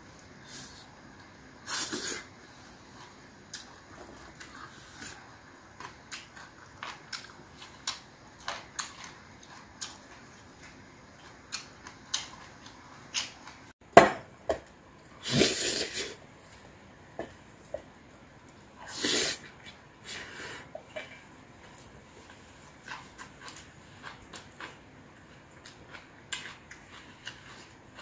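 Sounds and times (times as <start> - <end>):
chewing with mouth clicks: 2.9 - 13.6, 20.8 - 28.0.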